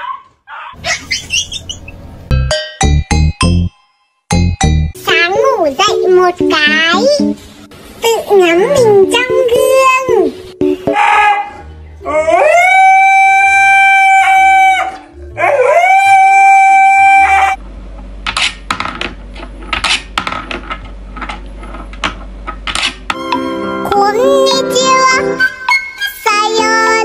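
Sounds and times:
husky howling: 0:11.0 - 0:17.6.

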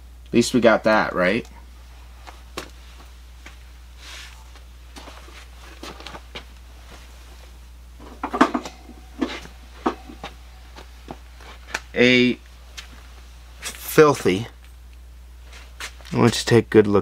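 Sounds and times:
items clattering together: 0:08.0 - 0:10.3
housewares knocking and rustling: 0:08.0 - 0:11.2.

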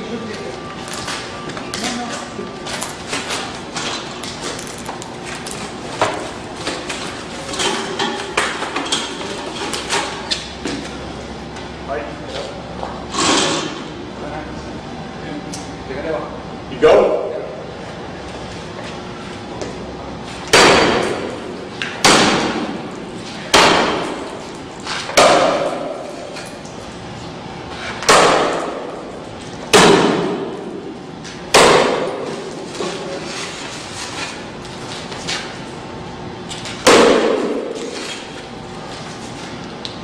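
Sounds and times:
axe striking glass: 0:20.5 - 0:21.2, 0:31.6 - 0:32.3.

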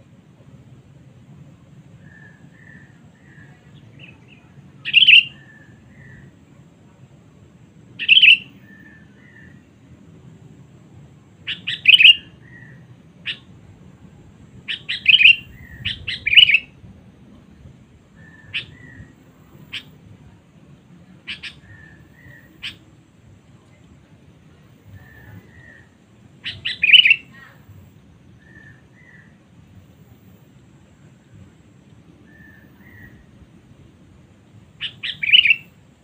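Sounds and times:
bird chirping: 0:02.0 - 0:06.3, 0:08.0 - 0:09.7, 0:11.4 - 0:13.5, 0:14.7 - 0:16.7, 0:18.1 - 0:20.0, 0:21.2 - 0:22.9, 0:24.9 - 0:27.6, 0:28.4 - 0:29.4, 0:32.2 - 0:33.3, 0:34.8 - 0:35.8.

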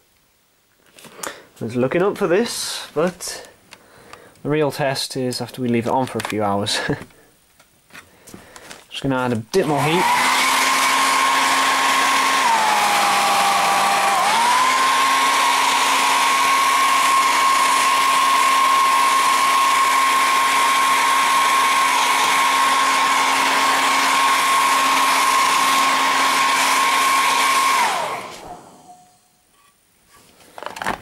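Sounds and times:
hair dryer motor winding down: 0:09.6 - 0:29.2
hair dryer running: 0:09.6 - 0:29.2.

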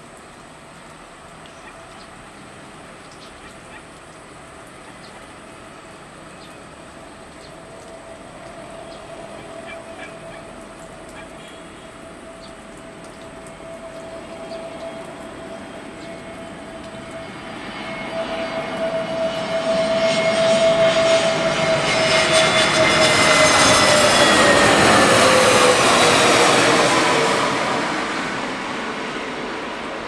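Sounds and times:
jet engines whining overhead: 0:03.9 - 0:30.0.

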